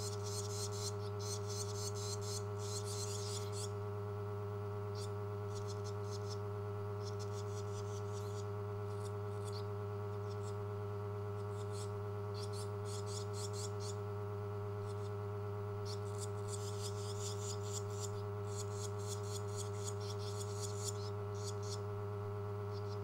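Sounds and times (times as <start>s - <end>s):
nestlings begging twitters: 0.0s - 3.8s, 4.9s - 6.4s, 7.0s - 10.6s, 11.4s - 14.0s, 14.8s - 15.1s, 15.8s - 21.8s, 22.7s - 23.0s
low electrical hum: 0.0s - 23.0s.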